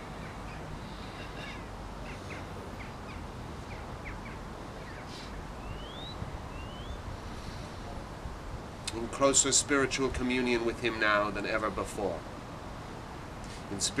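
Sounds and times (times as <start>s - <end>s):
small birds chirping: 0.0s - 7.8s
wind rumble on microphone: 1.8s - 10.9s
rising whistles: 4.9s - 7.0s.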